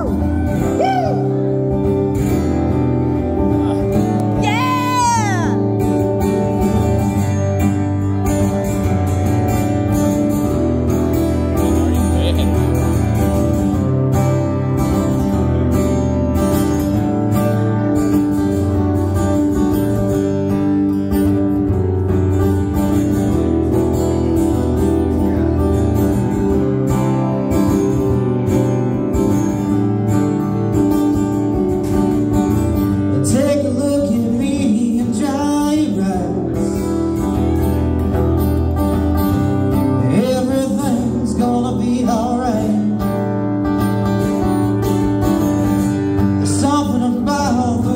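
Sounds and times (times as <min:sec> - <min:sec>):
acoustic guitars strumming: 0:00.0 - 0:47.9
man singing: 0:33.1 - 0:37.3, 0:39.7 - 0:43.4, 0:46.2 - 0:47.9.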